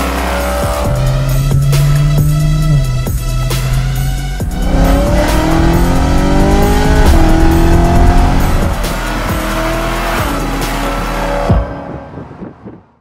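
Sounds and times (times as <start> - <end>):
car engine accelerating hard: 0.0 - 12.5.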